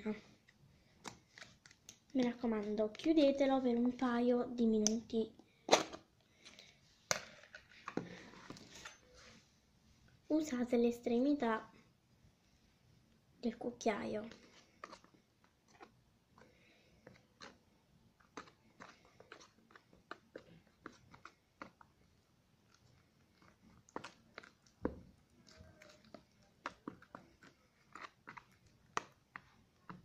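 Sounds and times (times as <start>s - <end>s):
spoon scraping plastic tub: 14.3s - 16.0s, 18.2s - 21.8s.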